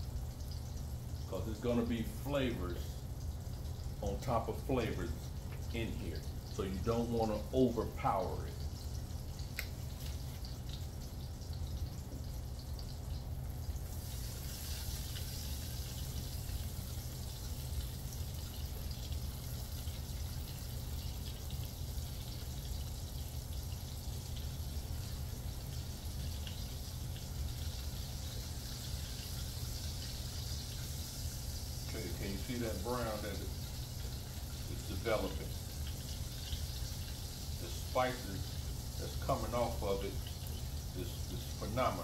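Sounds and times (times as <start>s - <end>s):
sausage sizzling in a pan: 8.6s - 42.0s.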